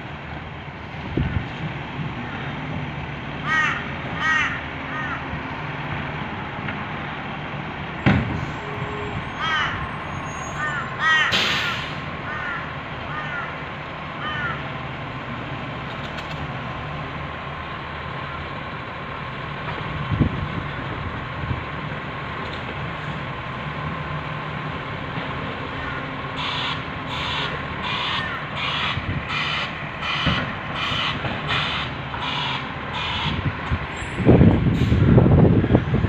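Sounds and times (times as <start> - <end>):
crow cawing: 3.4 - 5.3, 9.4 - 9.8, 10.6 - 11.4, 12.2 - 13.6, 14.2 - 14.6, 25.8 - 33.4
reversing alarm beeping: 26.4 - 33.4.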